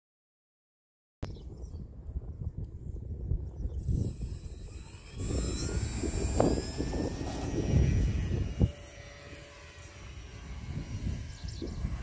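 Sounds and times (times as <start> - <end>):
electric motors whining: 3.8 - 12.0.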